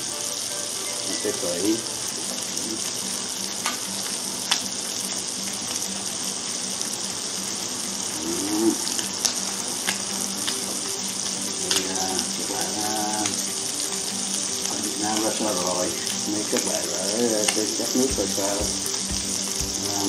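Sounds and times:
meat sizzling in a frying pan: 0:00.0 - 0:20.0.

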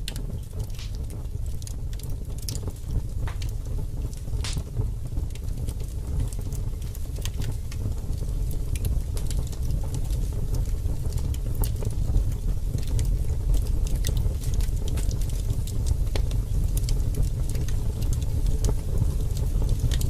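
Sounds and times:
low fire rumble: 0:00.0 - 0:20.0
wood fire crackling and popping: 0:00.0 - 0:20.0.

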